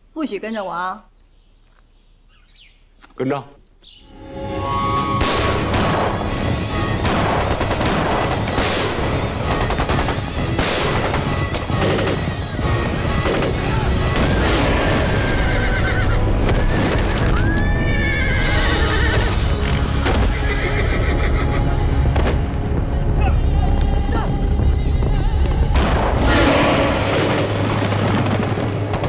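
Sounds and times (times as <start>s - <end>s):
background music: 3.9s - 29.0s
sharp blasts: 5.1s - 15.5s, 25.8s - 29.0s
horses galloping: 9.3s - 13.9s
horses whinnying and neighing: 11.0s - 21.8s.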